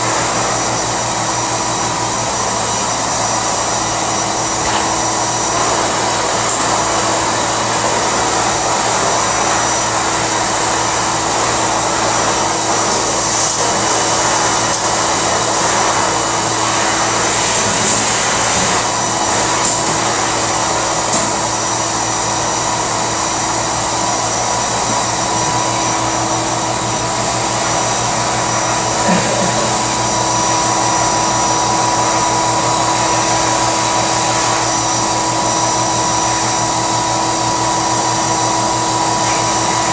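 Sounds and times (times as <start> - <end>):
vacuum cleaner running: 0.0 - 39.9.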